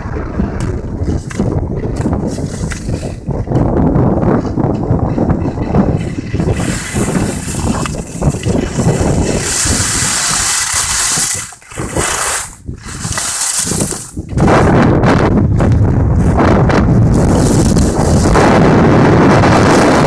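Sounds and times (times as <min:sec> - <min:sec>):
wind buffeting microphone: 0:00.0 - 0:20.0
skis scraping on hard snow: 0:00.6 - 0:03.7, 0:04.3 - 0:14.8, 0:16.2 - 0:18.8.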